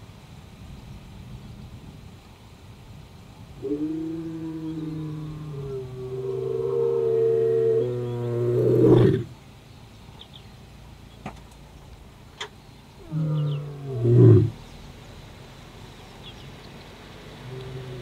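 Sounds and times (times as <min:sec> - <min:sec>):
lion roaring: 0:03.6 - 0:09.3, 0:13.0 - 0:14.6, 0:17.4 - 0:18.0.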